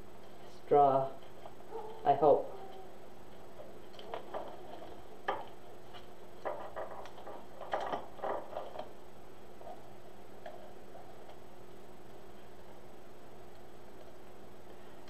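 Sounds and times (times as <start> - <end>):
faint steady hum: 0.0 - 15.0
plastic mesh crinkling: 1.2 - 11.4.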